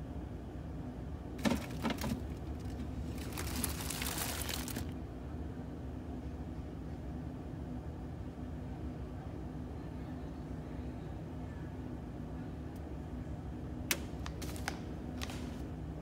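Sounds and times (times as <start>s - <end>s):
low steady hum: 0.0s - 16.0s
plastic bag crinkling: 1.4s - 4.9s, 14.2s - 15.6s.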